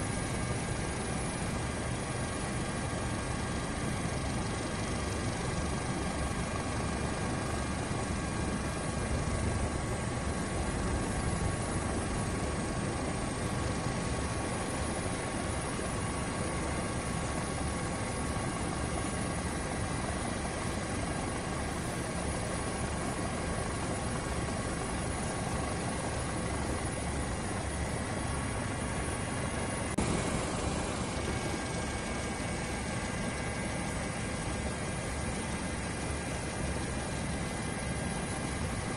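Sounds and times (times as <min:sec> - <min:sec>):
faint steady whine: 0:00.0 - 0:38.9
helicopter rotor and engine: 0:00.0 - 0:38.9.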